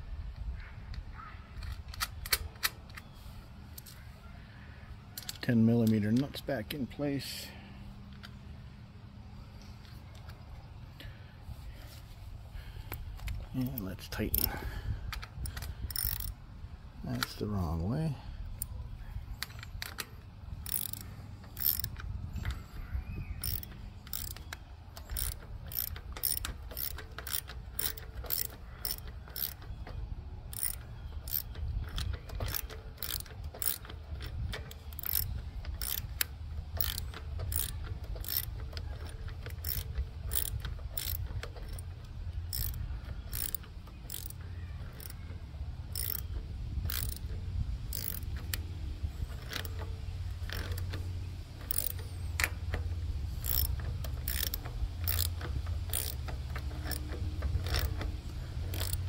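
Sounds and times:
ratchet wrench clicking: 5.2s - 6.4s, 12.9s - 16.4s, 19.4s - 59.0s.

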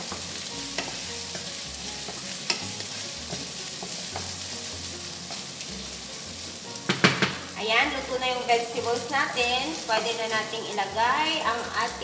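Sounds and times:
spatula tapping and scraping pan: 0.0s - 4.5s, 6.8s - 7.4s
bacon and vegetables sizzling: 0.0s - 12.0s.

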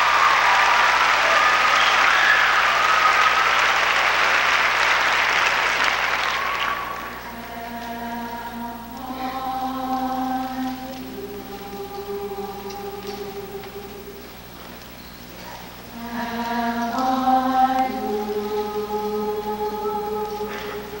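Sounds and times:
audience applause: 0.0s - 7.7s
choir singing held chords: 0.0s - 21.0s.

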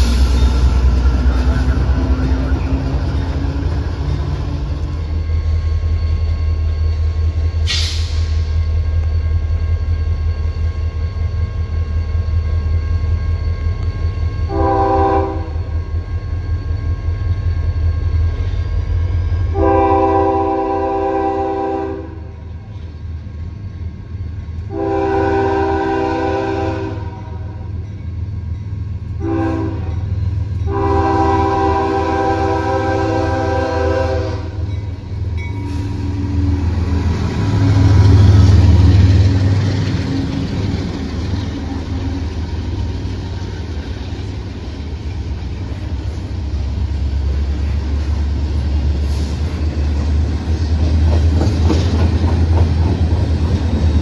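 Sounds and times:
diesel locomotive engine rumble: 0.0s - 54.0s
locomotive air horn blasts: 14.5s - 15.7s, 19.5s - 22.4s, 24.7s - 27.7s, 29.2s - 34.7s.

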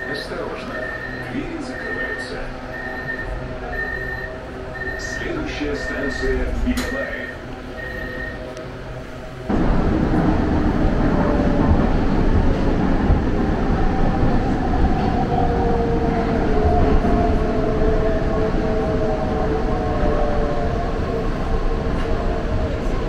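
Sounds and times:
metro train rumbling in tunnel: 0.0s - 23.0s.

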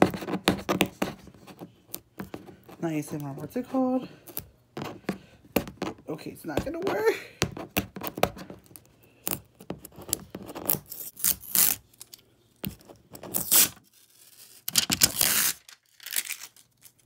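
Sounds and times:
plastic packaging tearing and crackling: 10.1s - 12.2s, 13.2s - 17.0s.

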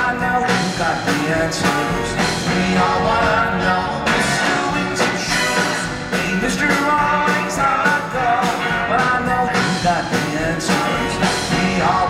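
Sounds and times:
swing band playing: 0.0s - 12.0s
saxophones: 1.7s - 9.7s.

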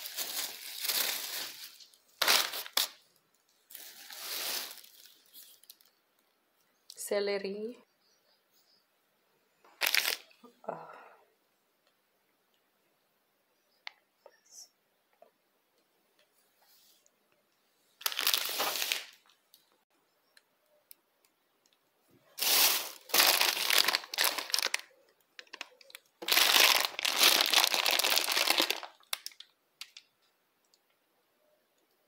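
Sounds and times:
plastic bags crinkling: 0.0s - 5.9s, 9.8s - 10.3s, 18.0s - 19.4s, 22.3s - 30.0s.

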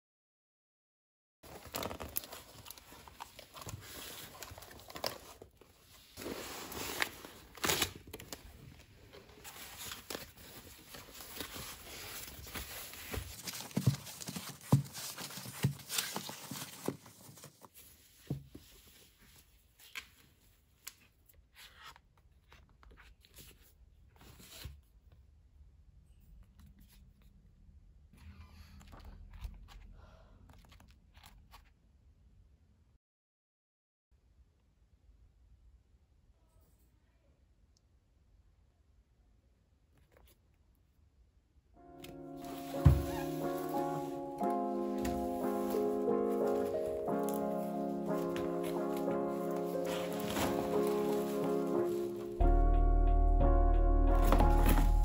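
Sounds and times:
foam wrapping rustling: 1.4s - 20.2s, 42.2s - 52.4s, 54.1s - 55.0s
packing tape peeling off cardboard: 6.2s - 8.4s.

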